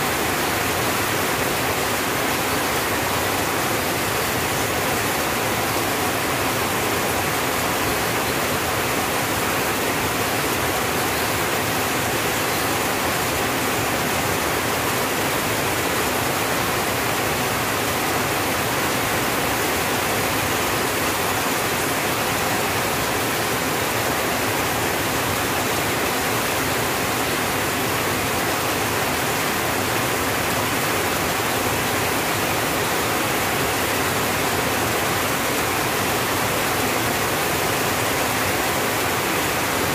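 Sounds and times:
rain on a tin roof: 0.0s - 39.9s.

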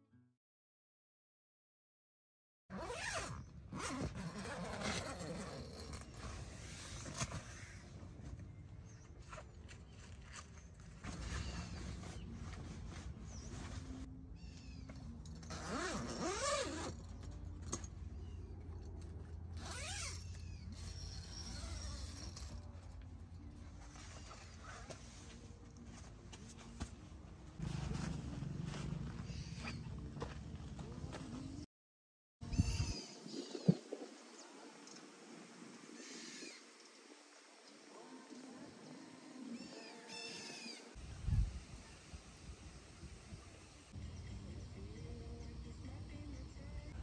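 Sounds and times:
tent fabric rustling: 2.7s - 7.9s, 8.9s - 14.1s, 15.5s - 17.0s, 19.6s - 29.1s
zipper: 2.7s - 7.9s, 15.3s - 17.8s, 19.5s - 22.8s, 23.9s - 25.3s.

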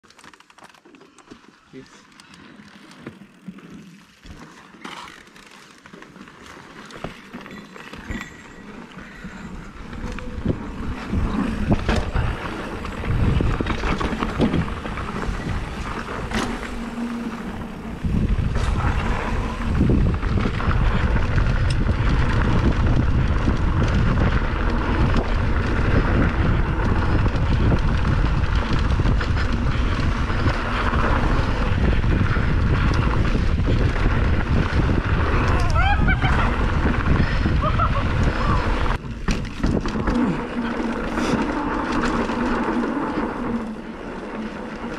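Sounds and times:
bike tyres rumbling on dirt: 0.0s - 44.9s
wind buffeting microphone: 9.0s - 43.6s.

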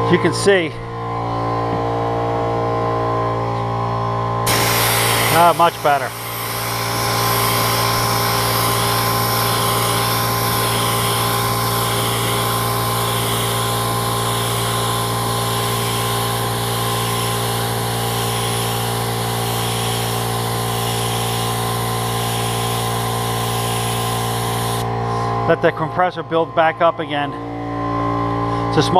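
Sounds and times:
air compressor humming: 2.6s - 28.8s
paint spray gun hissing: 4.5s - 24.9s.

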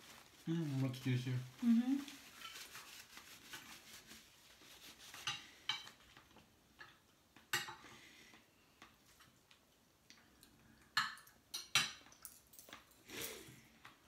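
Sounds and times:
cutlery clinking on plates: 5.2s - 6.0s, 6.8s - 7.9s, 10.9s - 13.4s.

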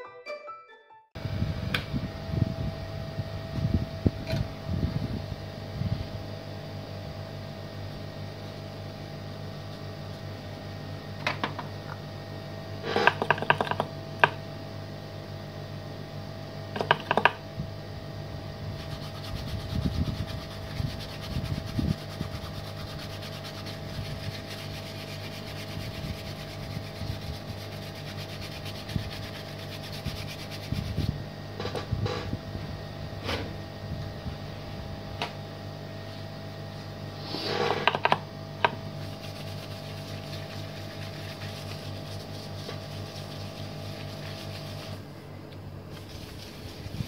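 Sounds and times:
steady mechanical hum: 1.2s - 47.0s.

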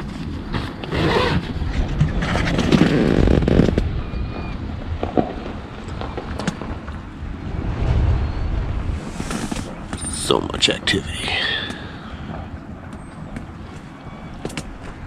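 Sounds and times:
low rumble: 6.8s - 10.6s.

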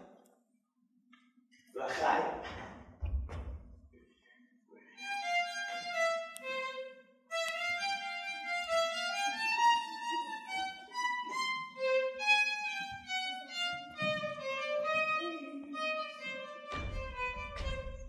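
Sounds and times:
solo violin melody: 5.0s - 18.0s.

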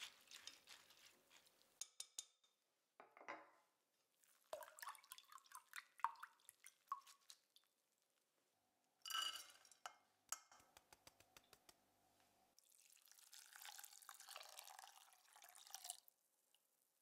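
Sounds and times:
lentils rattling into saucepan: 0.0s - 1.8s
water pouring into pan: 12.6s - 16.1s.

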